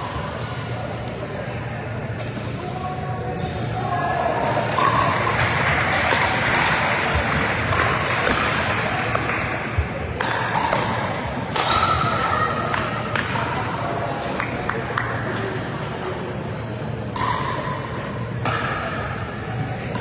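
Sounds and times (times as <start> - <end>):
voices in a large hall: 0.0 - 20.0.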